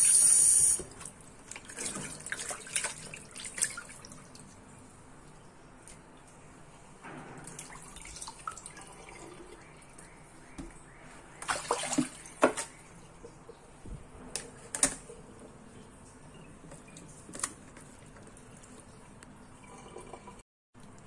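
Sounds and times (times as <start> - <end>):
water dripping and splashing: 0.8 - 6.6, 7.4 - 13.6.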